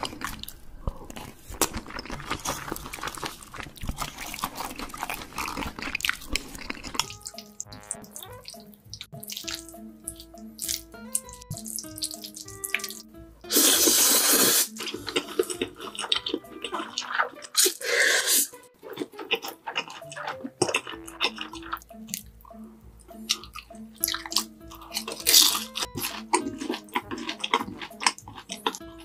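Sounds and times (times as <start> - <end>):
smacking chewing clicks: 0.0 - 13.2, 14.7 - 17.8, 18.6 - 29.0
background music: 0.0 - 29.0
person slurping noodles: 11.6 - 22.2.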